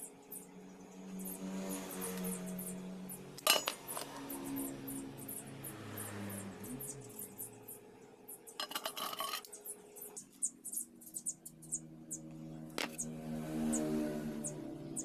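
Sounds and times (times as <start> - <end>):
metal chain links rattling: 3.4 - 4.2, 8.6 - 9.6.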